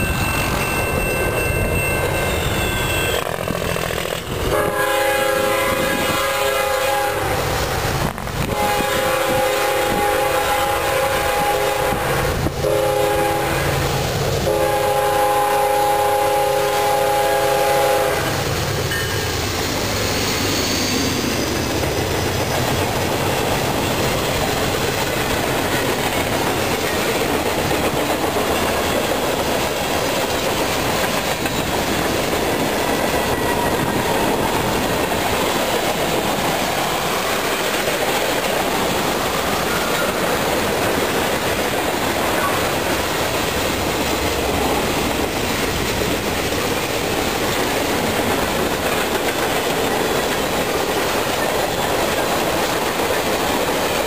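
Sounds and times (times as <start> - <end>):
level-crossing warning bell: 0.0 - 4.6, 18.2 - 27.4, 28.0 - 37.5
freight train rumbling past: 0.0 - 54.0
locomotive air horn: 4.5 - 7.5, 8.4 - 18.5
wheels clacking over rail joints: 18.4 - 54.0.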